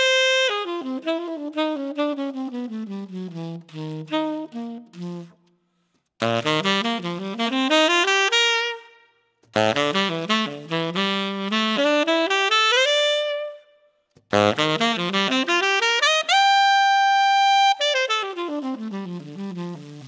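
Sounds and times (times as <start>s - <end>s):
tenor saxophone fast runs: 0.0s - 5.4s, 6.2s - 8.9s, 9.6s - 13.6s, 14.3s - 20.0s.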